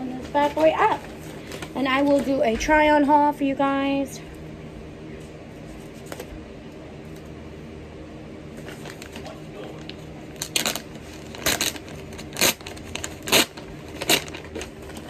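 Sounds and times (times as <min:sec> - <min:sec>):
steady low hum: 0:00.0 - 0:15.0
plastic bag rustling and crinkling: 0:08.6 - 0:15.0.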